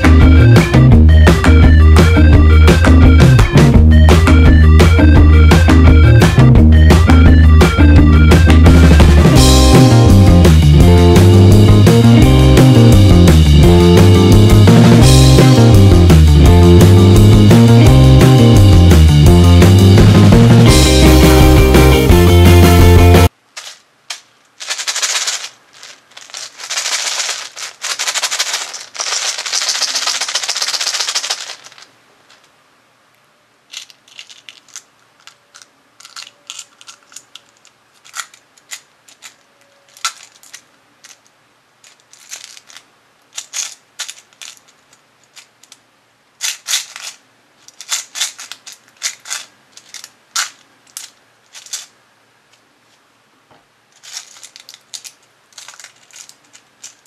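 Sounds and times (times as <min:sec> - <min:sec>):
play dough squeezed and torn: 0:23.6 - 0:32.4, 0:33.7 - 0:41.2, 0:41.8 - 0:44.7, 0:46.4 - 0:51.9, 0:54.0 - 0:57.0
plastic toy clicks and crinkles: 0:23.6 - 0:32.5, 0:33.7 - 0:45.8, 0:46.4 - 0:51.9, 0:53.9 - 0:57.0.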